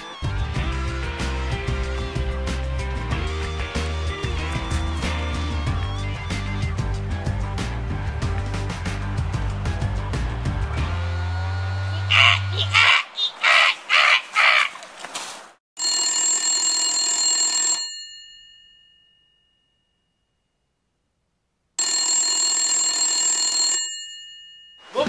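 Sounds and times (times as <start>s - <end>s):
telephone bell ringing: 15.8s - 20.0s, 21.8s - 25.0s.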